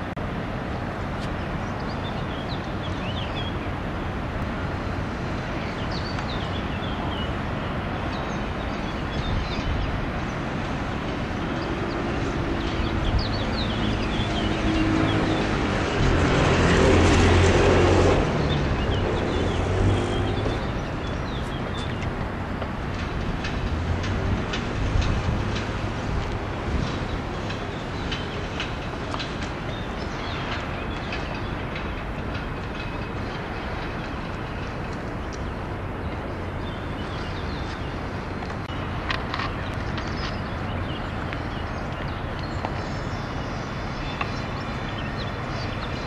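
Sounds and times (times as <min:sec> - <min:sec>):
distant city rumble: 0:00.0 - 0:46.0
vehicle engine hum: 0:10.0 - 0:46.0
small birds chirping: 0:38.6 - 0:46.0.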